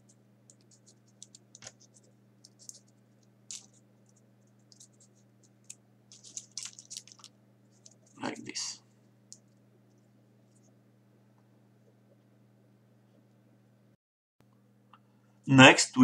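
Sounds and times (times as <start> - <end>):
paper clicks and scratches: 0.0 - 8.2
low steady hum: 0.0 - 16.0.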